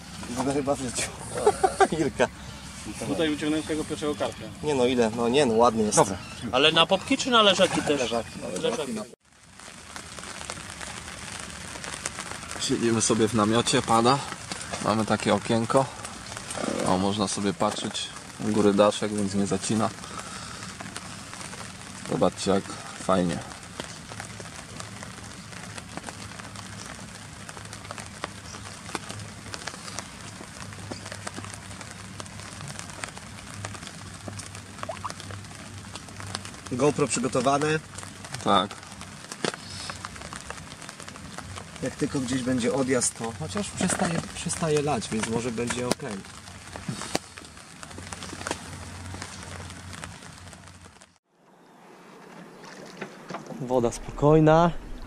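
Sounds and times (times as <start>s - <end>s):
rain hissing on tent: 0.0s - 51.3s
drops ticking on fabric: 23.7s - 42.8s
low hum: 51.3s - 55.0s.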